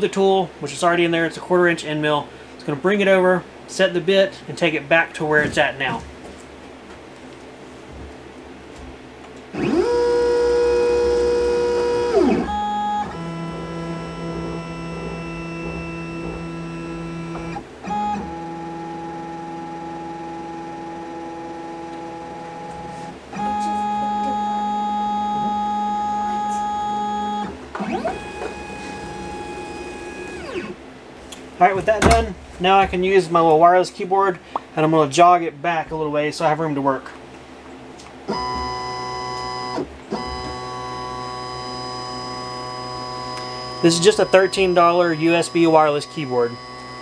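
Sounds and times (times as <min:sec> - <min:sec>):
stepper motors whining: 0:09.5 - 0:30.8, 0:38.3 - 0:47.0.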